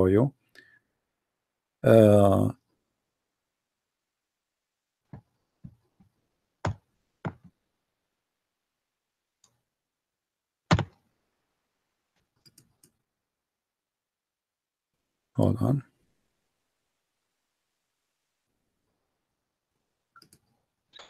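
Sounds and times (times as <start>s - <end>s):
computer mouse clicks: 12.3s - 13.0s, 20.2s - 21.0s.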